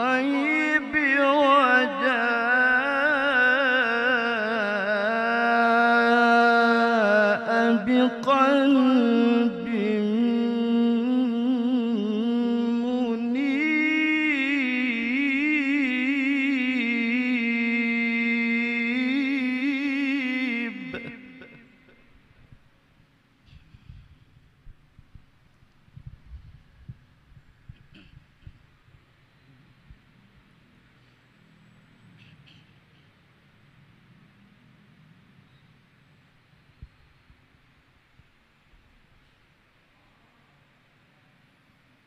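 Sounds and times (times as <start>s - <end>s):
man reciting melodically: 0.0s - 22.3s.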